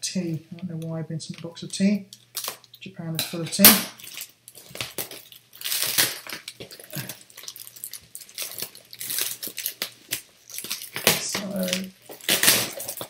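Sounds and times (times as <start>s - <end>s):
paper crinkling and tearing: 3.9s - 13.0s.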